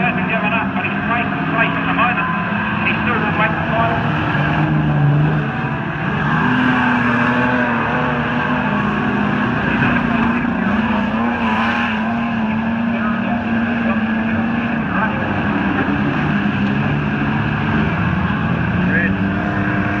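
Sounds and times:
race car engines at high revs: 0.0s - 20.0s.

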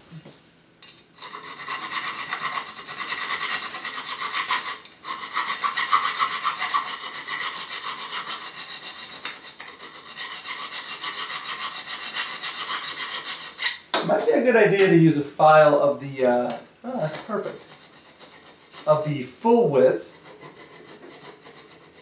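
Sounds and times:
metal file rasping on aluminium: 1.2s - 13.8s, 17.4s - 19.0s, 20.1s - 22.0s.

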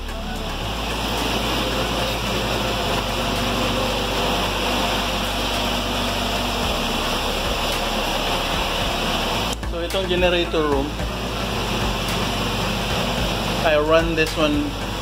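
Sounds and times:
low hum: 0.0s - 15.0s
ventilation rushing: 0.0s - 15.0s.

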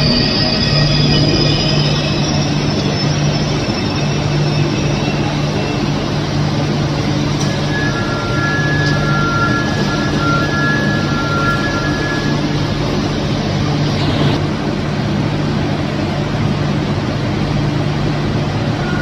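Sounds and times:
train equipment rushing hum: 0.0s - 19.0s
two-note electronic beeping: 7.4s - 12.7s.

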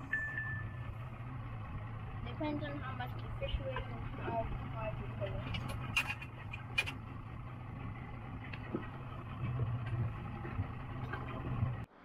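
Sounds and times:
outboard motors idling: 0.0s - 12.0s.

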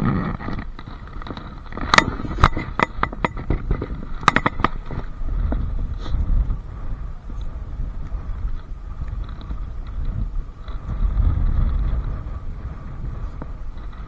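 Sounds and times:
wind rumbling on microphone: 0.0s - 14.0s
fishing gear clicking and knocking: 0.4s - 5.1s.

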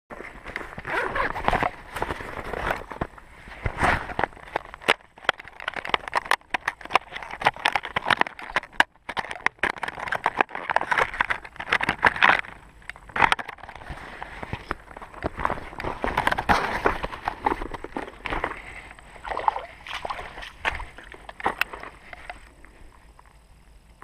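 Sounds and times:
packaging crackling and rustling: 0.2s - 19.2s.

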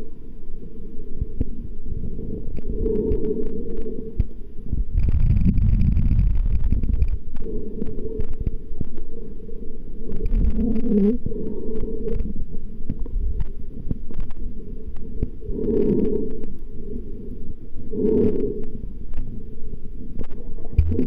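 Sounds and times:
underwater deep rumble: 0.0s - 21.0s
faint clicks underwater: 2.5s - 4.4s, 5.0s - 9.1s, 10.1s - 16.7s, 18.2s - 19.3s, 20.1s - 21.0s.

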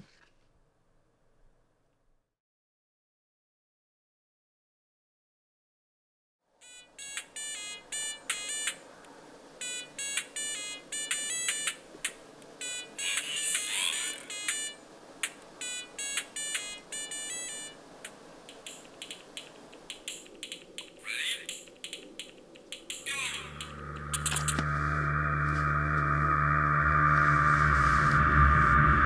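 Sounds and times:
rising electronic chirp: 23.0s - 29.0s.

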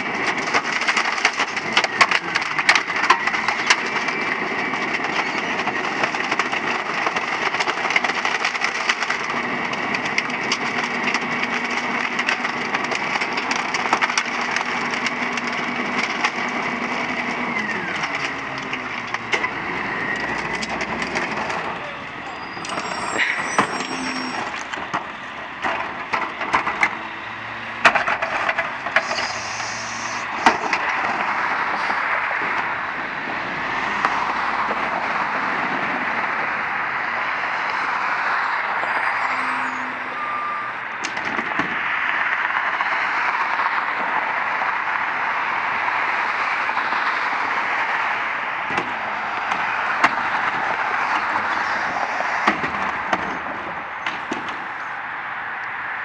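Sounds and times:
garbage truck engine revving: 0.0s - 54.8s
hydraulic whine: 21.7s - 24.7s, 28.9s - 30.8s
knocks and bangs of trash: 27.8s - 29.1s.

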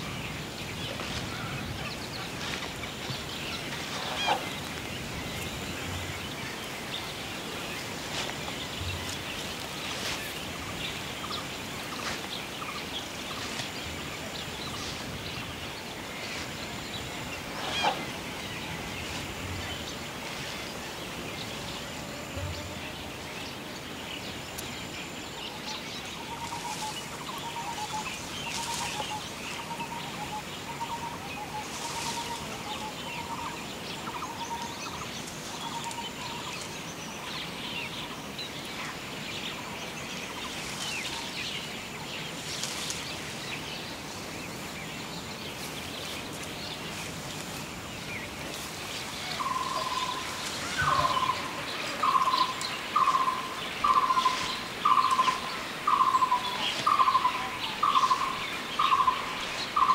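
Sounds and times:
birds chirping and calling: 0.0s - 59.9s
fast pulsed bird calls: 49.4s - 59.9s.

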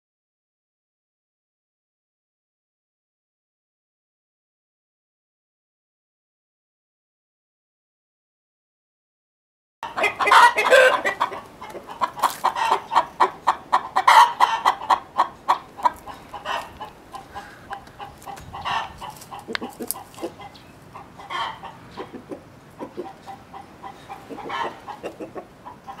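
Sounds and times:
chickens cackling: 9.8s - 26.0s.

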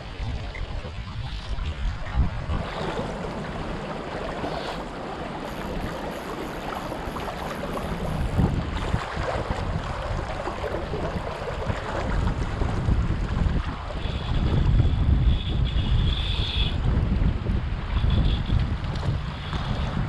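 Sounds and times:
river current rushing: 0.0s - 13.9s
wind on microphone: 0.0s - 20.0s.

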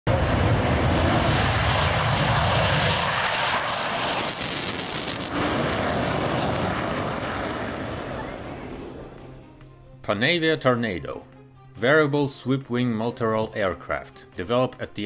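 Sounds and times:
jet engine roar: 0.1s - 9.4s.

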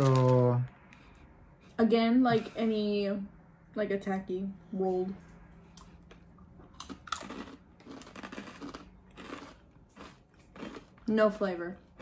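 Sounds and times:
tortilla chips crunching: 0.0s - 0.7s, 6.6s - 12.0s.

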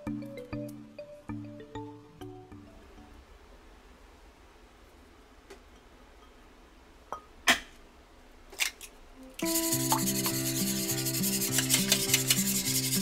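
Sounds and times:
whisk beating egg in metal tray: 9.4s - 13.0s.

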